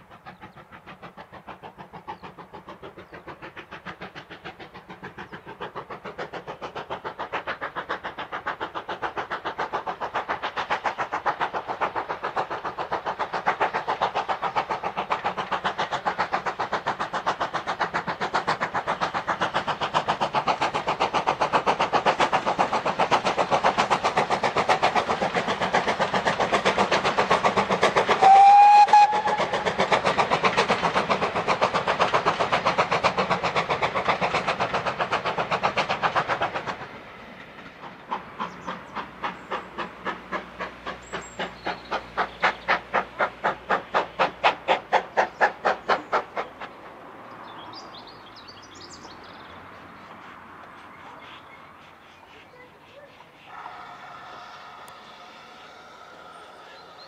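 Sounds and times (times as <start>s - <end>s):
steam locomotive exhaust beats: 0.0s - 57.0s
steam whistle blast: 28.2s - 29.5s.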